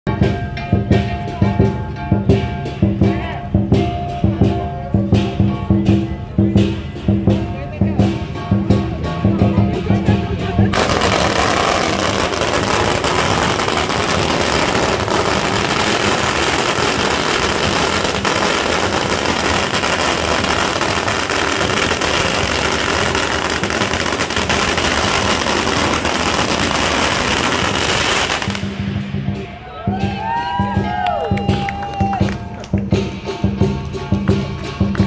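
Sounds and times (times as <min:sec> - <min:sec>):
firecrackers exploding: 0:10.7 - 0:29.0.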